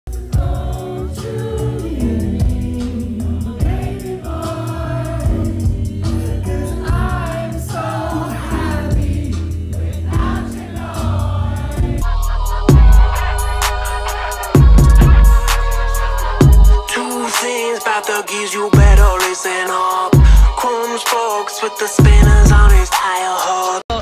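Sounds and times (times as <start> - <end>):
deep bass tone: 8.8 - 16.9, 22.0 - 22.8
loud hit: 12.0 - 16.9
man singing into a microphone: 12.1 - 24.0.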